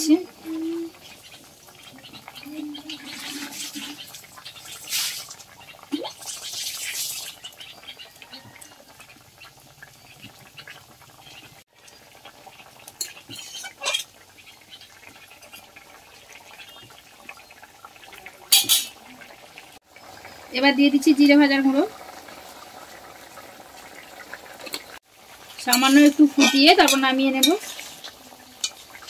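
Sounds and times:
curry bubbling: 0:00.0 - 0:29.0
metal spatula scraping pan: 0:13.0 - 0:14.1, 0:25.7 - 0:28.8.

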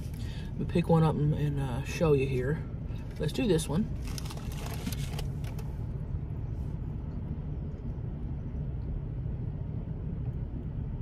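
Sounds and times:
paper crackling: 0:04.0 - 0:05.6.

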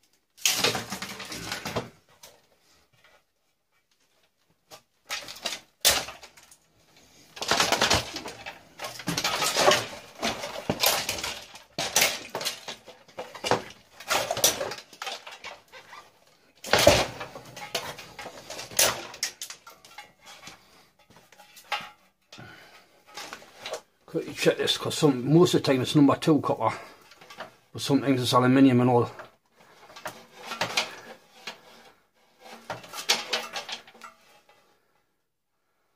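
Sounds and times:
metal parts clicking and clattering: 0:07.3 - 0:23.8, 0:29.8 - 0:31.7, 0:32.4 - 0:34.7.

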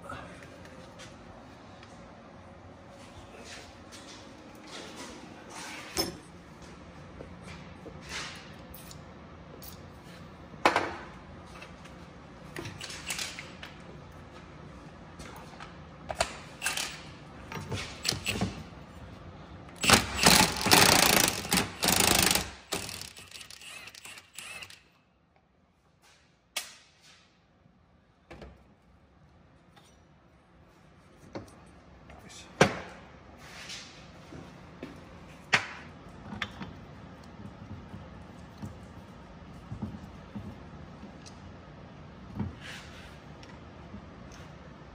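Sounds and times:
impact wrench hammering: 0:19.8 - 0:24.7.

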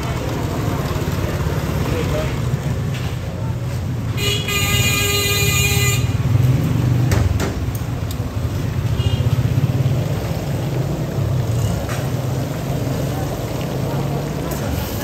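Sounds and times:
low rumble of engines: 0:00.0 - 0:15.0
vehicle horn: 0:04.2 - 0:06.3.

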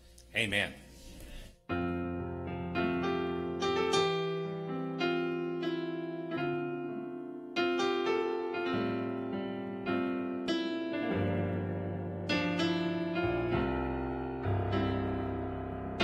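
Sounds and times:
piano slow sustained chords: 0:00.0 - 0:16.0.

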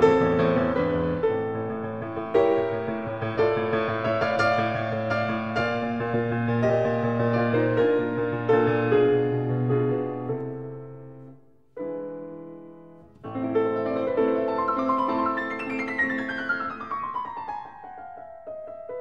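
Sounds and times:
piano music: 0:00.0 - 0:19.0.

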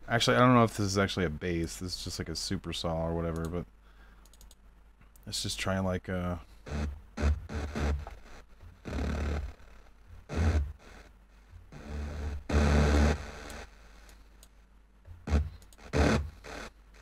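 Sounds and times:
synthesizer notes with deep low end: 0:06.6 - 0:13.7, 0:15.1 - 0:17.0.

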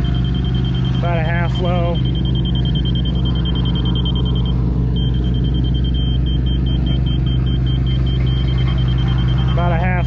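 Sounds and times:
diesel engine running: 0:00.0 - 0:10.0
electronic warning beeps: 0:00.0 - 0:10.0.

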